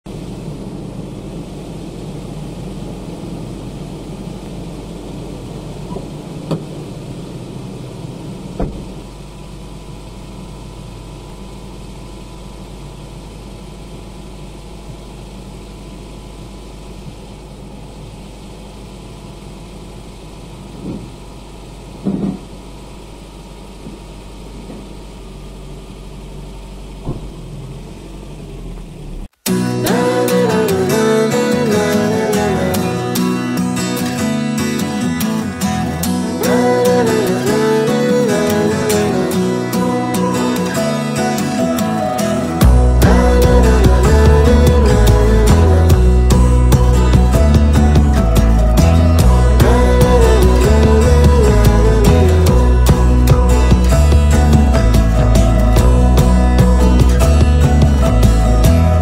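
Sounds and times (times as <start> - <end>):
pickup truck engine idling: 0.1 - 34.4, 35.6 - 59.0
sharp knocks and thuds: 8.6 - 9.0, 22.0 - 22.5, 27.0 - 27.4.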